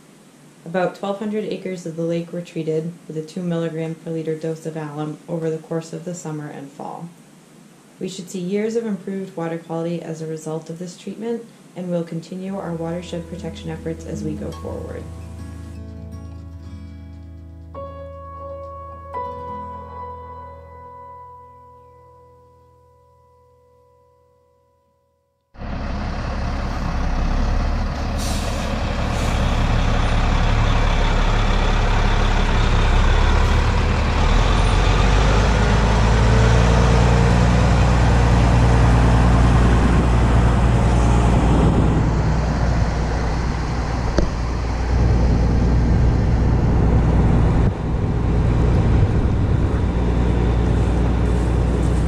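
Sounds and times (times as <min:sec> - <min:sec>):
diesel truck engine droning: 0:25.6 - 0:52.0.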